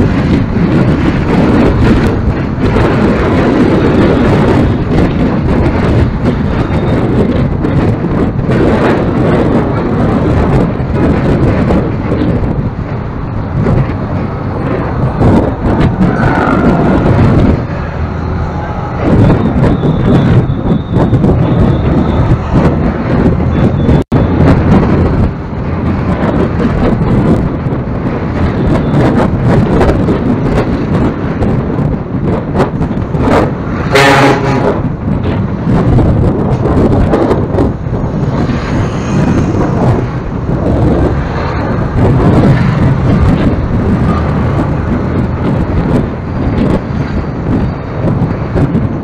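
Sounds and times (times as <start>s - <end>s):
vehicle engine and road noise: 0.0s - 49.0s
wind buffeting microphone: 0.0s - 49.0s
vehicle horn honking: 33.9s - 34.8s.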